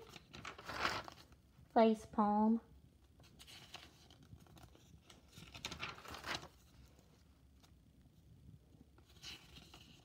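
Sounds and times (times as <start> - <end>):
notebook page rustling: 0.0 - 1.4, 3.2 - 7.8, 9.0 - 10.0.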